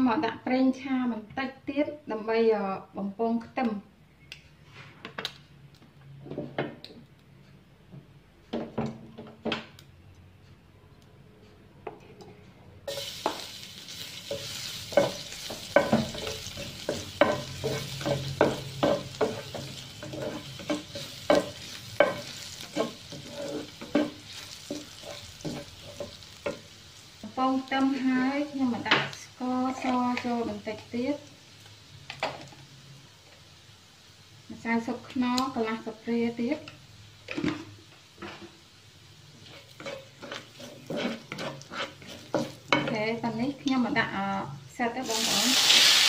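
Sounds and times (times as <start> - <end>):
spatula scraping pan: 12.9 - 26.6, 39.4 - 43.2
garlic sizzling in hot oil: 12.9 - 46.0.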